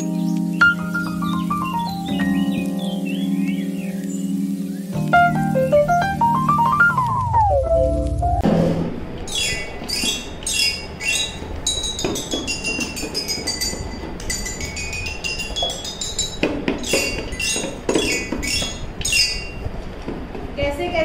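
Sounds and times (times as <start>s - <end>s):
toy xylophone notes: 11.7s - 19.6s.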